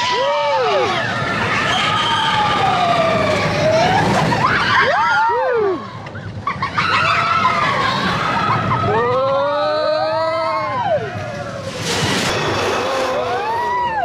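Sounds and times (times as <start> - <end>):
riders screaming and whooping: 0.0 - 14.0
roller coaster rumbling on track: 0.0 - 14.0.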